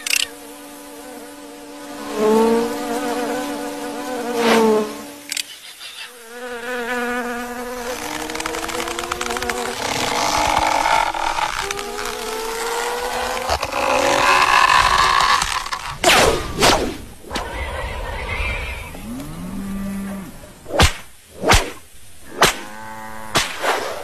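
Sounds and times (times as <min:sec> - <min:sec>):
cartoon flies buzzing: 0:00.0 - 0:24.0.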